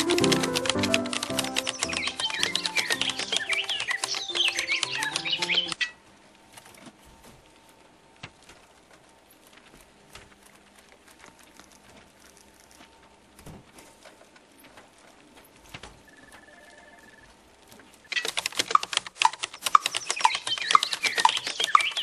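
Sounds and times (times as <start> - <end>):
music: 0.0 - 5.8
faint steady tone: 15.4 - 18.1.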